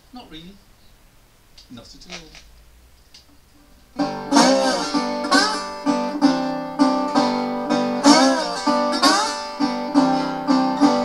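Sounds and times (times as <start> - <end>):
slide resonator guitar: 3.6 - 11.0.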